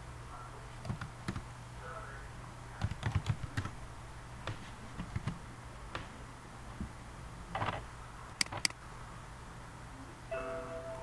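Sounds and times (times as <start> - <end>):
steady low hum: 0.0 - 11.0
keyboard typing: 0.8 - 1.4, 2.8 - 3.8, 4.5 - 5.4, 8.4 - 8.8.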